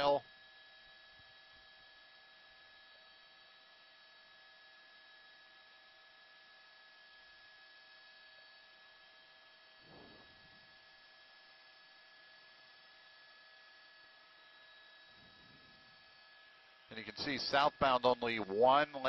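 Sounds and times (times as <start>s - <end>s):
electrical hum: 9.8s - 10.9s, 14.9s - 19.0s.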